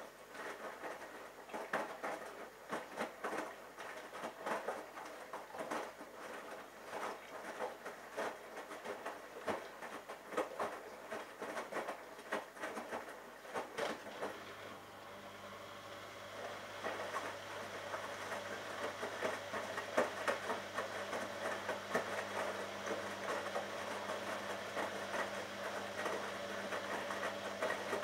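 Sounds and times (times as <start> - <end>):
laundry splashing and slapping: 0.0 - 28.0
washing machine drum turning: 14.0 - 28.0.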